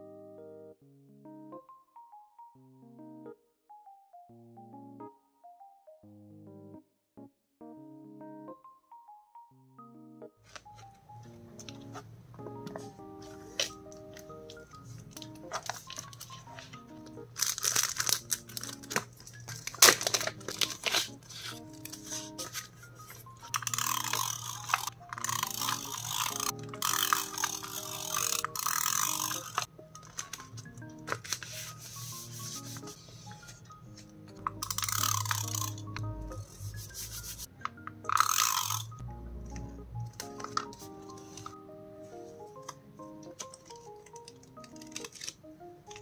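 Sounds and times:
soft background music: 0.0s - 46.0s
plastic sticker cover crinkling: 10.4s - 11.0s, 12.7s - 36.0s, 40.2s - 41.6s, 43.3s - 46.0s
hands rubbing paper: 17.4s - 29.6s, 31.1s - 33.6s, 36.5s - 37.5s.

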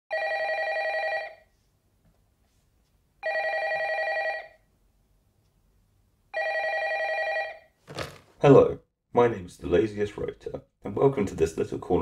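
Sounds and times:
telephone ringing: 0.1s - 1.4s, 3.2s - 4.6s, 6.3s - 7.8s.

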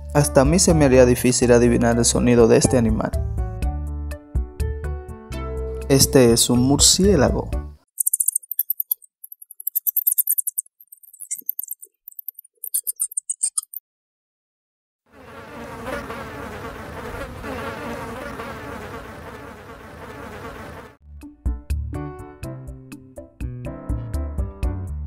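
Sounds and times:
bat calls high-pitched chirps: 8.0s - 13.8s
housefly buzzing in flight: 15.1s - 21.0s.

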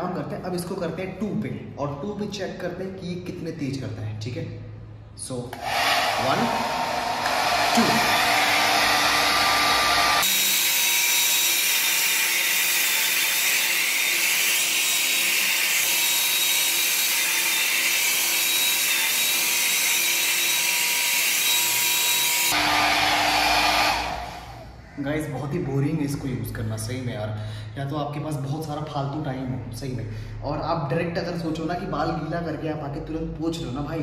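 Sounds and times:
hair dryer blowing: 5.6s - 10.7s, 22.4s - 24.7s.

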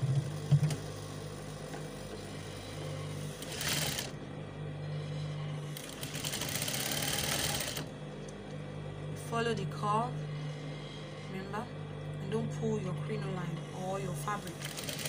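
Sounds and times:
steady motor hum: 0.0s - 15.0s
sewing machine stitching: 3.2s - 4.1s, 5.8s - 7.9s, 14.2s - 15.0s.

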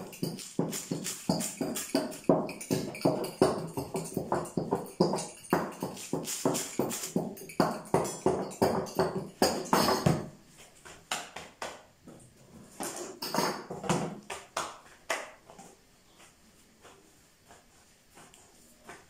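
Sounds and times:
rolling pin knocking on wooden board: 0.1s - 10.3s.

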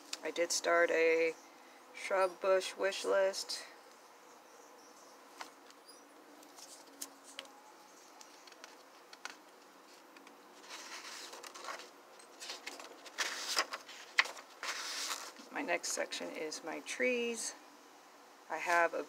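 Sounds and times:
paper pages rustling: 6.4s - 15.5s.

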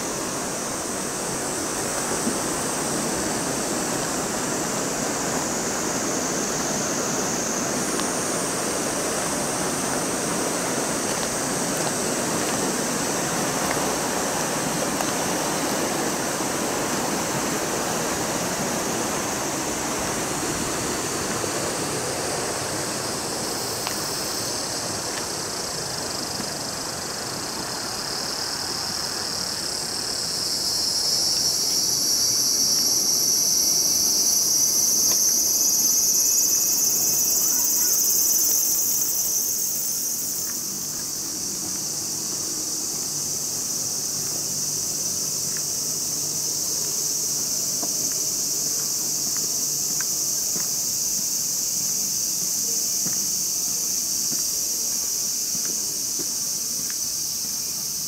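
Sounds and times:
river water rushing: 0.0s - 30.9s
shrill insects chorus: 0.0s - 58.0s.

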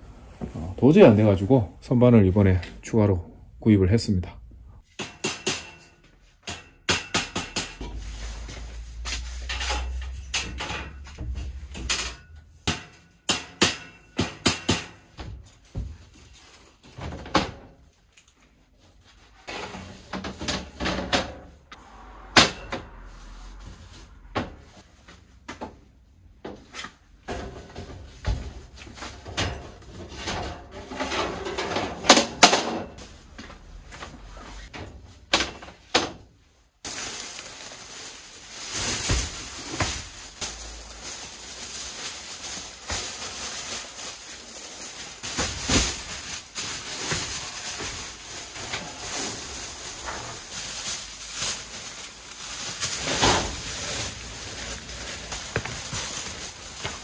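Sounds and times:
shelving parts knocking and clattering: 4.8s - 17.8s, 19.4s - 21.6s, 24.2s - 36.4s.

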